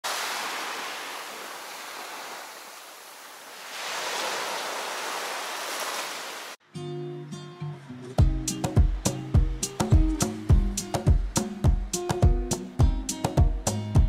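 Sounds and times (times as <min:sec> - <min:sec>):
waves breaking on beach: 0:00.0 - 0:06.6.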